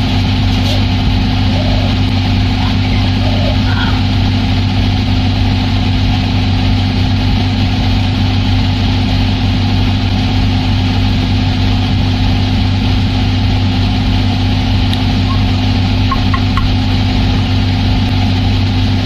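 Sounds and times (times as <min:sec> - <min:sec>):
washing machine drum spinning: 0:11.8 - 0:19.0.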